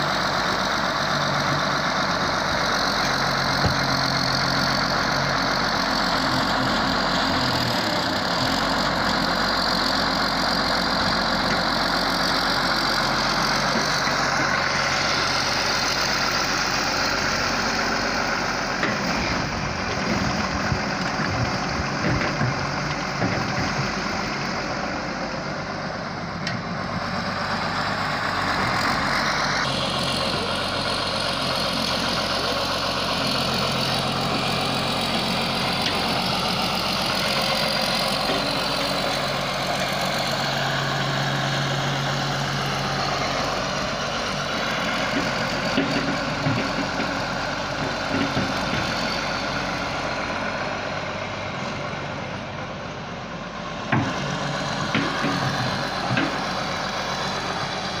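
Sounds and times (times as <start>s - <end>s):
excavator diesel engine running: 0.0s - 58.0s
excavator digging sand: 25.8s - 49.9s, 53.6s - 58.0s.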